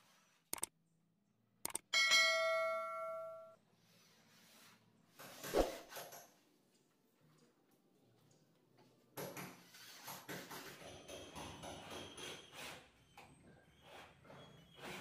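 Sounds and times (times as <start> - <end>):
quick clicks: 0.5 - 0.7, 1.6 - 1.9
bright bell ding: 2.0 - 3.6.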